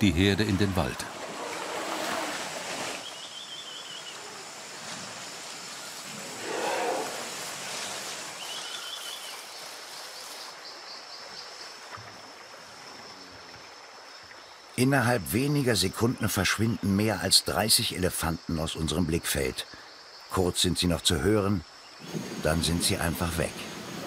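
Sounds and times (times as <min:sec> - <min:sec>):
steady insect drone: 0:00.2 - 0:24.0
elephants splashing through water: 0:00.6 - 0:10.6
elephant roaring call: 0:06.1 - 0:07.7.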